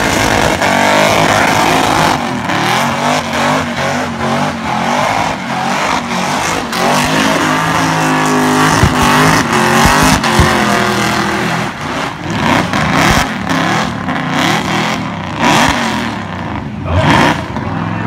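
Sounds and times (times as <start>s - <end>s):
car engine revving hard: 0.0s - 18.0s.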